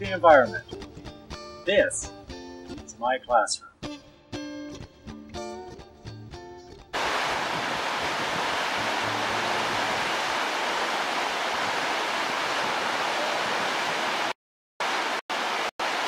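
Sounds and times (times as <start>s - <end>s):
river rapid rushing water: 7.0s - 16.0s.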